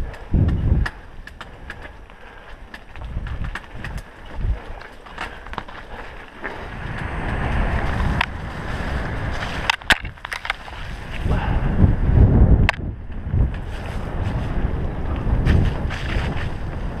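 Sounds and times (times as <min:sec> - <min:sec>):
bike clacking over bumps: 0:00.0 - 0:11.1
wind buffeting microphone: 0:00.0 - 0:17.0.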